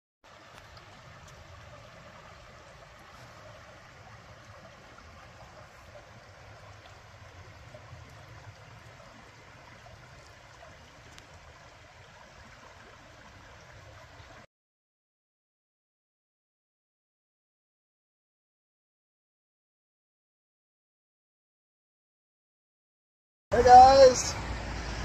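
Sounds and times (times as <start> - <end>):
creek flowing over rocks: 0.2 - 14.5, 23.5 - 25.0
low water rumble: 0.2 - 14.5, 23.5 - 25.0.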